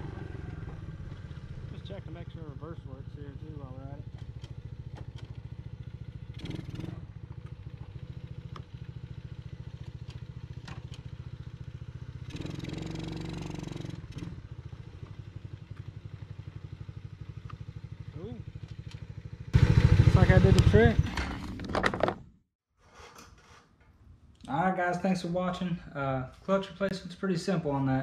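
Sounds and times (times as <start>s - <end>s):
atv engine revving: 0.0s - 22.0s.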